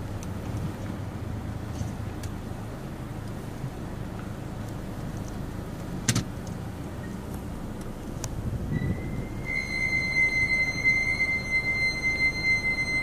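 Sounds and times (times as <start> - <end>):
low rumble: 6.7 - 13.0
high-pitched brake squeal: 8.6 - 13.0.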